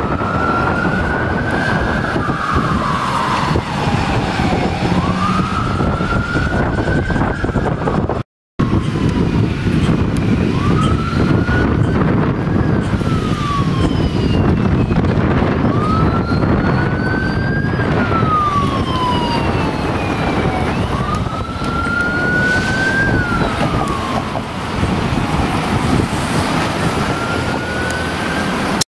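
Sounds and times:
police siren wailing: 0.0s - 28.8s
traffic rumble: 0.0s - 28.8s.

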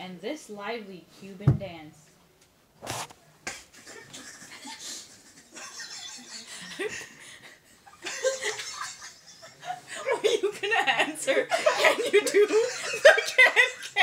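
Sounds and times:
breathy laughter and giggling: 3.5s - 14.0s.

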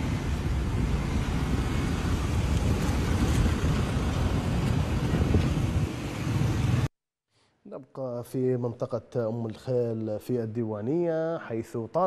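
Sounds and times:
cars driving past: 0.0s - 6.9s
wind buffeting microphone: 0.0s - 6.9s.

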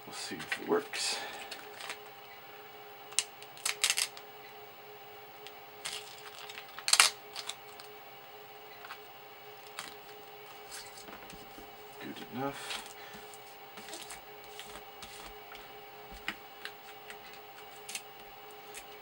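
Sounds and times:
faint steady hum: 0.0s - 19.0s
paper label crinkling: 3.2s - 4.2s, 5.8s - 7.9s, 16.2s - 19.0s.

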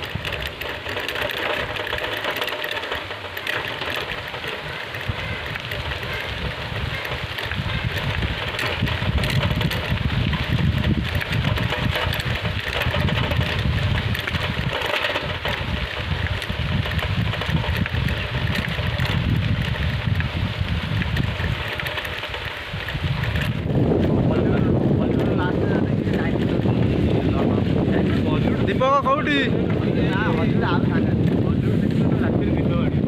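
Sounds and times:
rushing hiss of bicycle ride: 0.0s - 33.0s
wind buffeting microphone: 0.0s - 33.0s.

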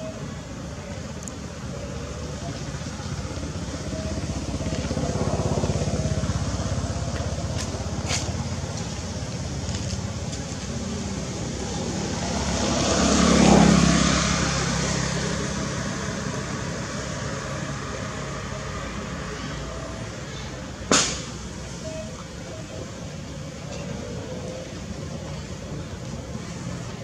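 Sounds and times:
vehicle engine running: 0.0s - 27.0s
vehicle passing by: 1.6s - 20.9s.

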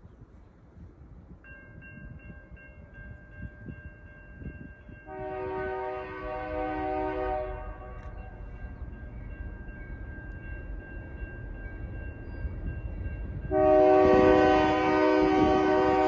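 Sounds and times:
ringing crossing bell: 1.3s - 5.5s, 7.8s - 14.2s
locomotive air horn blast: 5.1s - 8.0s, 13.5s - 16.0s.

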